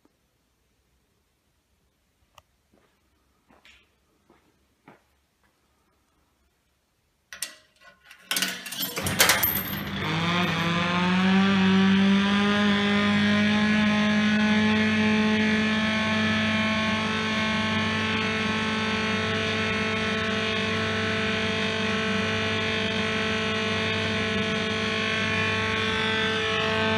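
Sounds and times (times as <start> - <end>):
coin dropping into ride: 7.3 - 10.7
kiddie ride motor humming: 9.0 - 13.8.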